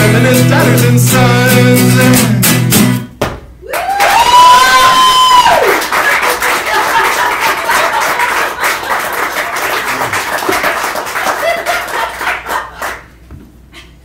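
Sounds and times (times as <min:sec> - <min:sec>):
audience applauding and cheering: 0:03.6 - 0:13.1.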